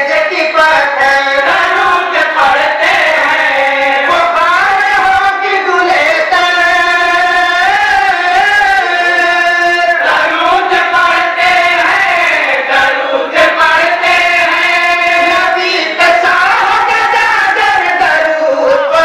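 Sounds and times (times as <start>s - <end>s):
men singing in unison: 0.0s - 19.0s.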